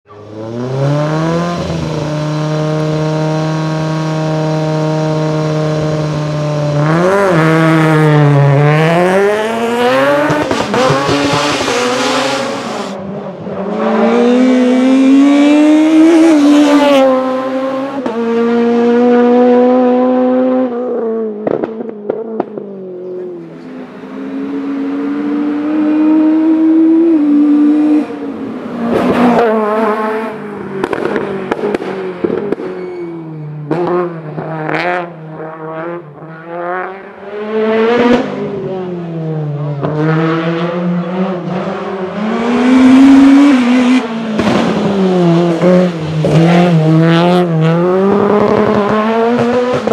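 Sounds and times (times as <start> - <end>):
high-revving car engine: 0.1 - 32.8, 33.4 - 49.9
exhaust pops and crackles: 21.4 - 22.7, 30.8 - 32.7, 44.3 - 45.6.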